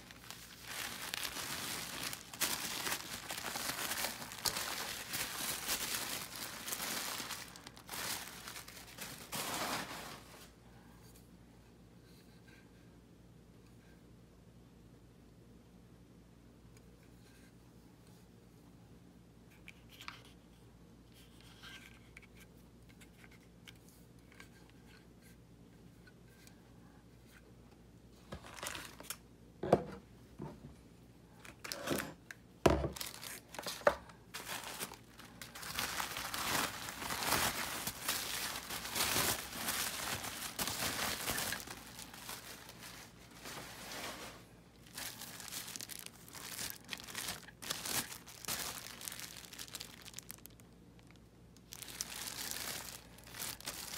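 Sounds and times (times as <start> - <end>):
plastic packaging crinkling: 0.0 - 10.5, 28.3 - 29.2, 32.8 - 53.9.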